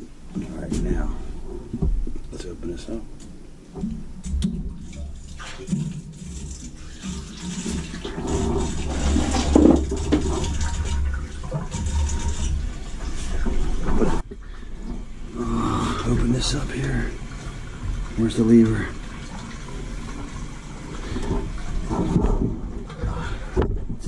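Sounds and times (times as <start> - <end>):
water and air gurgling through pipes: 0.0 - 24.0.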